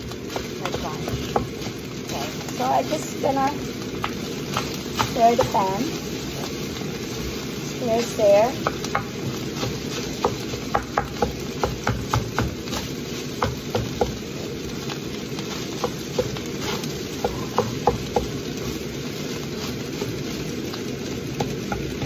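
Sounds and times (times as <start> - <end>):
frying sizzle: 0.0 - 22.0
spatula knocking pan: 0.2 - 1.8, 3.9 - 6.7, 7.9 - 18.8, 21.3 - 22.0.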